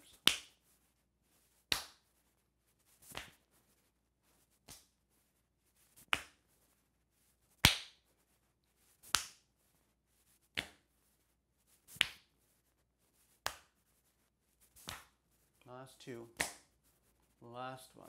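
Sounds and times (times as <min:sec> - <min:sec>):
palms slapping body: 0:00.0 - 0:00.6, 0:01.6 - 0:02.1, 0:03.0 - 0:03.6, 0:04.5 - 0:05.0, 0:06.0 - 0:06.5, 0:07.5 - 0:08.1, 0:09.0 - 0:09.5, 0:10.5 - 0:10.9, 0:11.9 - 0:12.4, 0:13.3 - 0:13.8, 0:14.6 - 0:15.3, 0:16.2 - 0:16.9.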